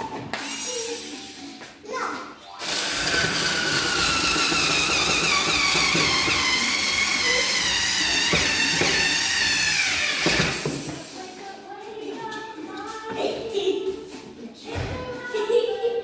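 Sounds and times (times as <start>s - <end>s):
cordless drill whining: 2.6s - 10.9s.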